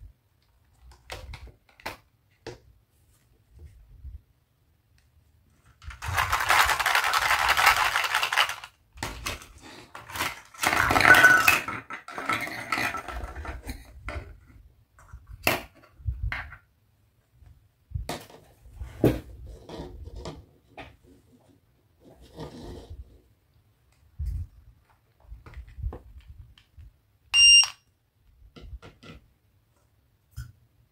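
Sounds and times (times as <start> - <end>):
plastic toy pieces clattering: 5.8 - 13.7.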